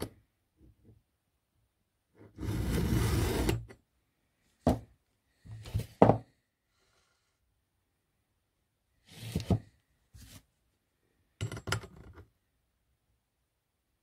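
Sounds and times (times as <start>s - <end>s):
file scraping saw chain: 2.4s - 3.7s.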